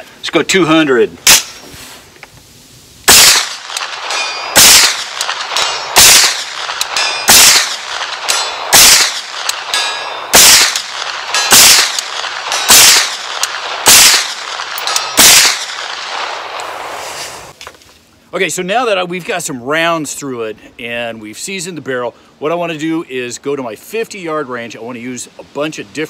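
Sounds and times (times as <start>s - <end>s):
rifle shots: 1.3s - 1.6s, 3.1s - 17.0s
metallic pings from steel target: 4.1s - 4.8s, 6.9s - 7.7s, 9.7s - 10.6s.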